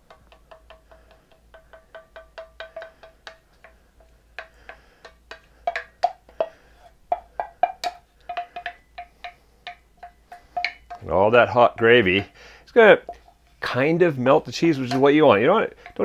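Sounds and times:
rapid ringing knocks: 0.0s - 12.4s.

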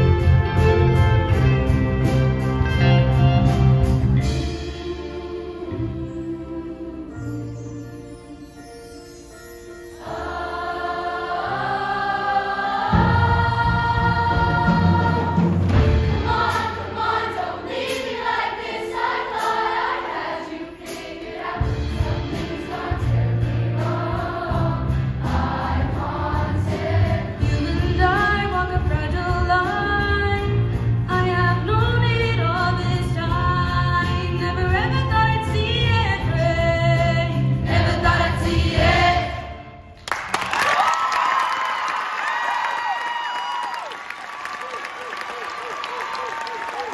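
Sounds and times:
choir singing: 4.6s - 8.2s, 9.9s - 27.9s, 37.2s - 39.9s.

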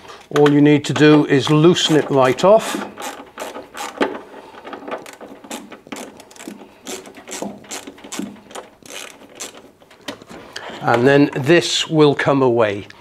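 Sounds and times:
socket ratchet clicking: 1.5s - 4.1s, 5.0s - 9.8s.

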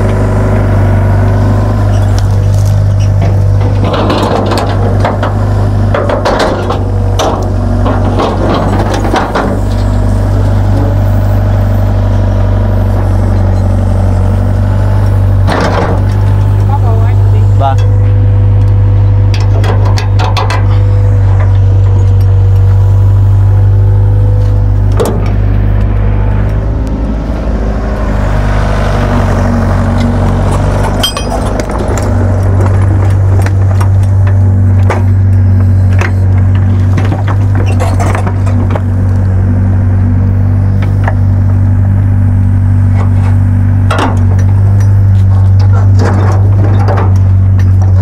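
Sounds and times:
diesel excavator engine running: 0.0s - 48.0s
sharp metallic clanks: 30.8s - 31.8s.

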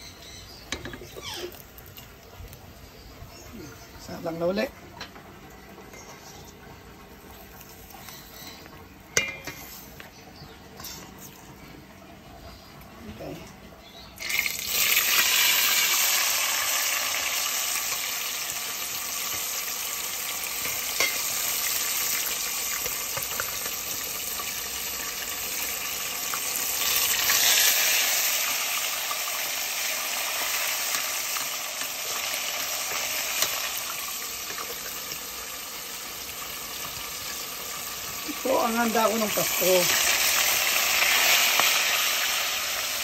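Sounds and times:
fish sizzling in hot oil: 14.2s - 43.0s.

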